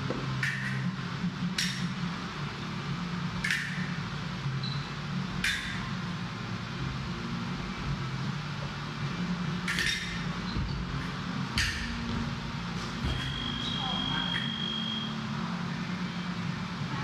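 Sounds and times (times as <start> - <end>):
steady low hum: 0.0 - 17.0
fencing blades clinking: 9.6 - 10.2.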